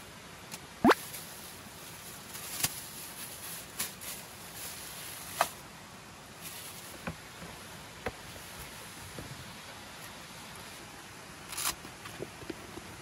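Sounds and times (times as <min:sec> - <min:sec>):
faint steady hiss: 0:00.0 - 0:13.0
plastic bags crinkling: 0:00.9 - 0:05.6.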